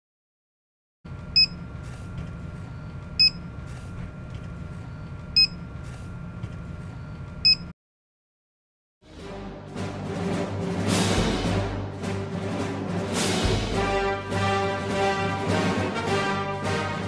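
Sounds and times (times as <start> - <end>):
steady low hum: 1.1 - 7.7
short electronic beeps: 1.4 - 1.6, 2.7 - 3.5, 4.9 - 5.7, 7.0 - 7.7
music: 9.0 - 17.0.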